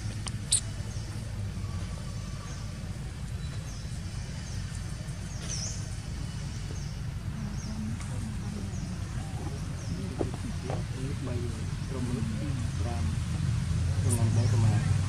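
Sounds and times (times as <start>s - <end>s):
small bird chirping: 0.0s - 10.8s
steady low rumble: 0.0s - 15.0s.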